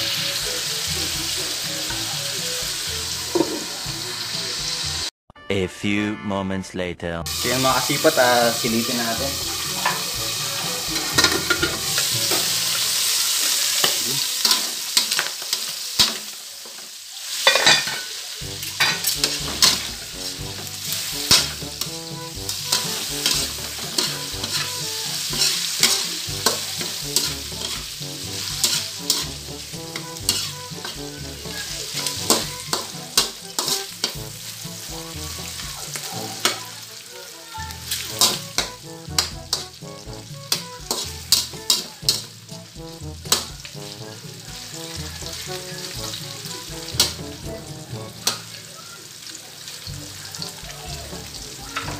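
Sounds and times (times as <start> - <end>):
meat sizzling in a wok: 0.0 - 5.1, 7.3 - 51.9
metal spatula scraping a pan: 7.4 - 37.1, 37.7 - 48.6.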